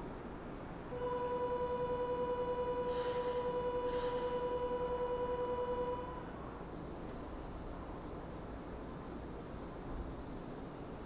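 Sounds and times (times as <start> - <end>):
electronic departure bell: 1.0 - 6.1.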